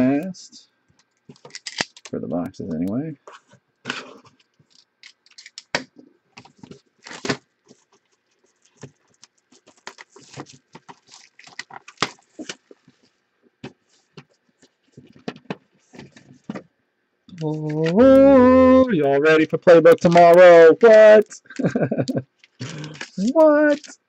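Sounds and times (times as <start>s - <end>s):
shrink-wrap crinkling and tearing: 1.4s - 2.2s, 6.4s - 12.8s, 22.4s - 24.0s.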